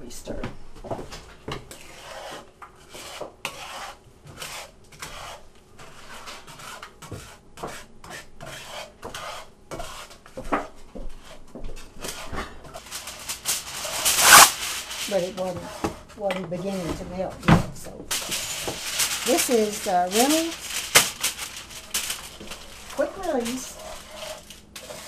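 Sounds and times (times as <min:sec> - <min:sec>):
spatula scraping frying pan: 0:01.6 - 0:11.4, 0:12.0 - 0:16.1, 0:18.1 - 0:25.0.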